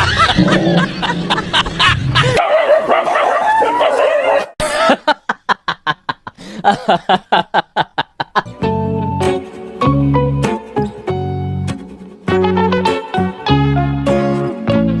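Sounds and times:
dog barking sharply: 0:02.4 - 0:04.5
dog crying: 0:02.4 - 0:04.6.

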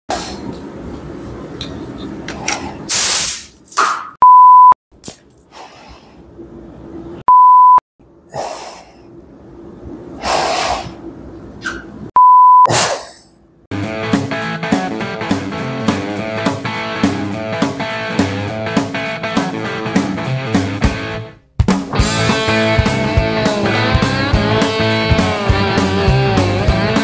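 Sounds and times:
spray gun air hiss: 0:02.9 - 0:03.5
censor bleeps: 0:04.2 - 0:04.8, 0:07.3 - 0:07.8, 0:12.2 - 0:12.7
music with guitar and drums: 0:13.7 - 0:27.0.

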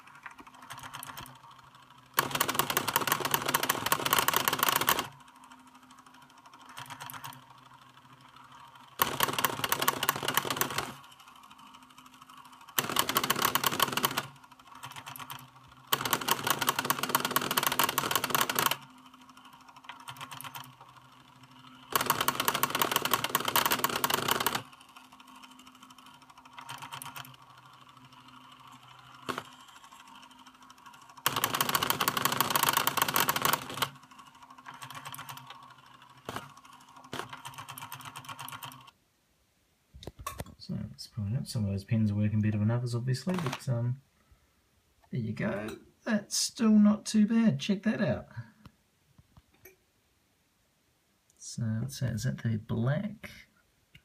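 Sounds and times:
plotter motors chattering: 0:00.0 - 0:39.0.

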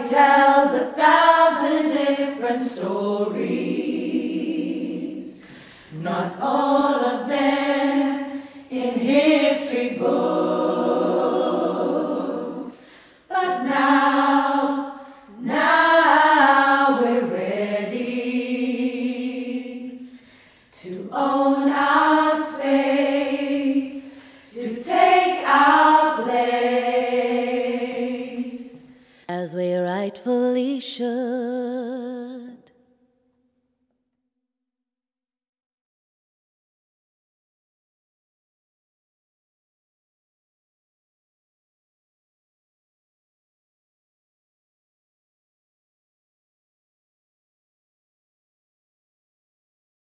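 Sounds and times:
women's choir singing a cappella: 0:00.0 - 0:32.6.

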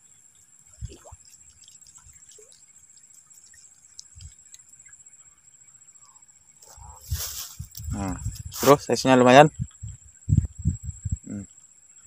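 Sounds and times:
water splashing and dripping: 0:00.3 - 0:05.0
soft low thumps: 0:09.5 - 0:11.4.

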